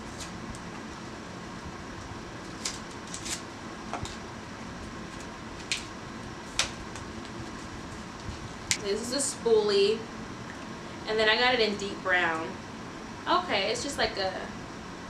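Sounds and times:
steady background hum: 0.0 - 15.0
plastic packaging crackling: 2.4 - 3.4.

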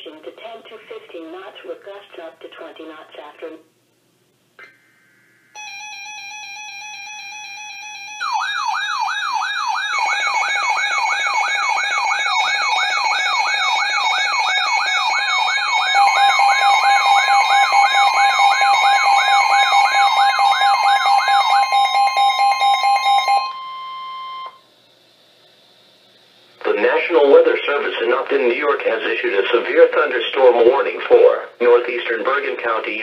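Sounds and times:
siren-like warble: 4.8 - 24.7
alert radio steady tone: 9.8 - 24.7, 26.6 - 33.0.

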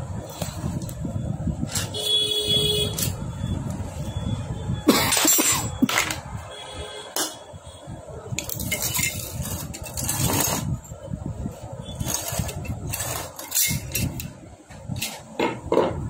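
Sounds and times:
metal parts clinking: 5.0 - 6.2, 8.4 - 10.7, 12.0 - 14.3.

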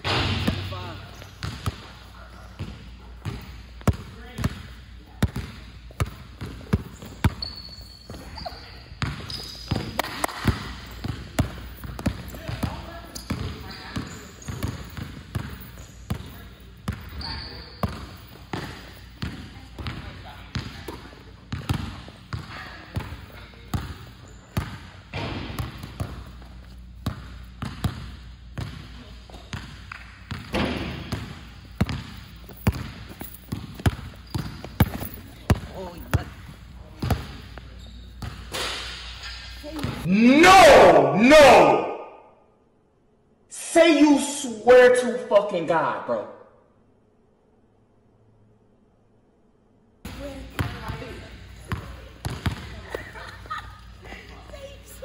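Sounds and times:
basketball bouncing on hard floor: 0.0 - 1.9, 5.2 - 16.3, 16.9 - 26.4, 27.0 - 36.4, 37.0 - 37.4, 39.8 - 40.0, 50.1 - 52.8
shoe squeaks: 1.0 - 1.5, 6.8 - 10.0, 13.0 - 15.0, 15.6 - 16.1, 17.1 - 18.3, 24.1 - 24.6, 32.6 - 35.4, 37.4 - 38.5.

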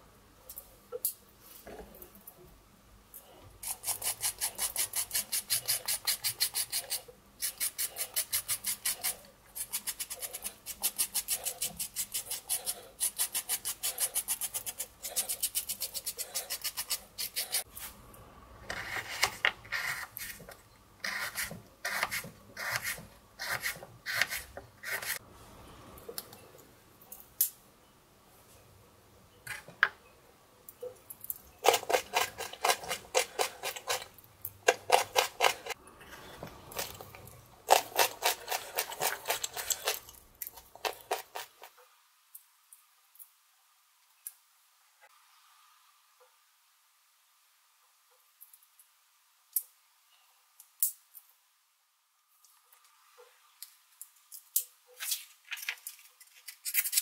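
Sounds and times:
knife scraping a carrot: 3.6 - 17.7, 18.7 - 25.2, 31.6 - 35.8, 37.7 - 41.7.

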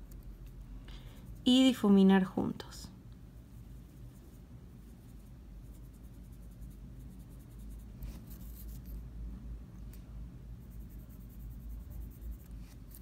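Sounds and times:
low steady hum: 0.0 - 13.0
brush scratching on fingernail: 3.5 - 9.0, 10.6 - 13.0.

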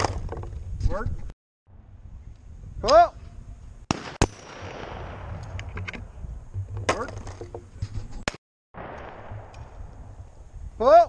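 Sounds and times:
shotgun firing: 3.9 - 5.7, 8.8 - 10.4.

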